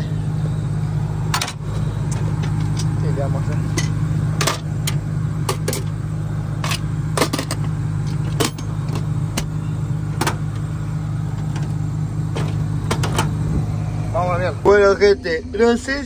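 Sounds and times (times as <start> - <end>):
combine harvester engine running: 0.0 - 16.0.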